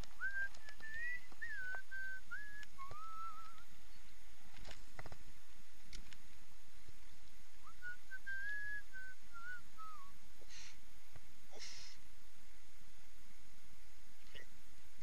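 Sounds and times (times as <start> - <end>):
person whistling a tune: 0.2 - 3.6, 7.7 - 10.1.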